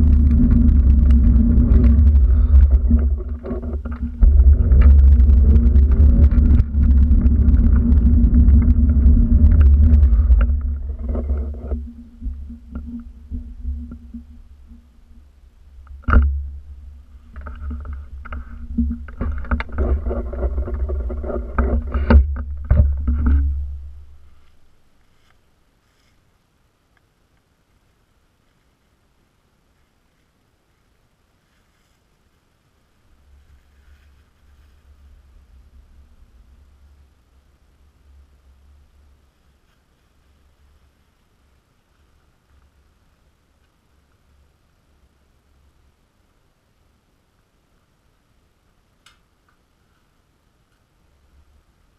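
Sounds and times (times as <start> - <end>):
wind rumble on microphone: 0.0 - 24.8
microphone handling noise: 0.0 - 25.4.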